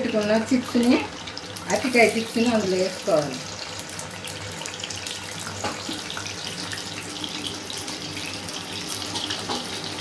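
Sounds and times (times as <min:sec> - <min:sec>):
plantain slices deep-frying in oil: 0:00.0 - 0:10.0
small pops of frying oil: 0:05.4 - 0:06.9, 0:09.0 - 0:09.8.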